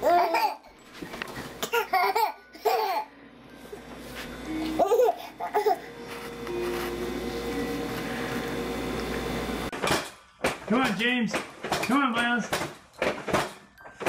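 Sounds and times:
babies laughing and babbling: 0:00.0 - 0:00.8, 0:01.6 - 0:03.1, 0:04.8 - 0:05.9.

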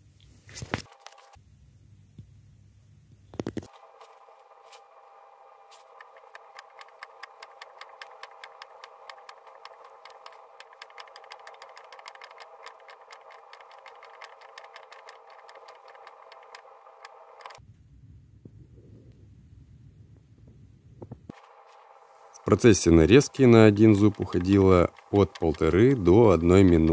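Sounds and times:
steady machine hum: 0:03.7 - 0:18.3, 0:21.0 - 0:26.9
cutter strokes clicking: 0:04.8 - 0:17.6, 0:22.4 - 0:26.9.

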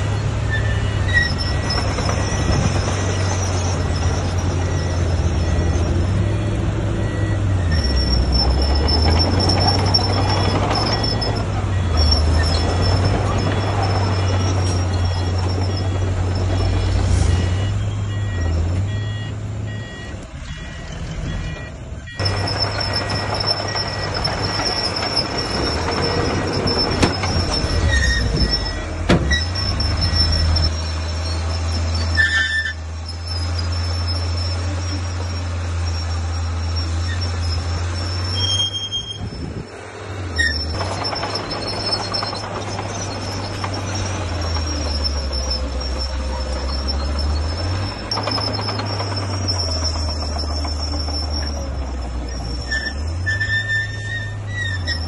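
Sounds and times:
diesel engines running: 0:00.0 - 0:55.0
high continuous squeal: 0:00.1 - 0:06.3, 0:07.6 - 0:17.7, 0:20.4 - 0:39.7, 0:40.3 - 0:55.0
beeping alarm: 0:00.7 - 0:08.8, 0:14.6 - 0:26.0.

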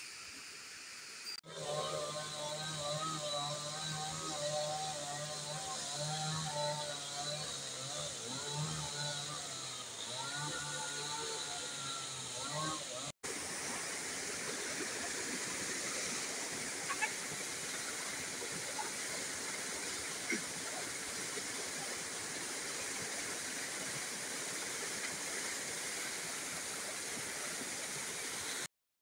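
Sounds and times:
water rushing over stones: 0:13.2 - 0:28.7.

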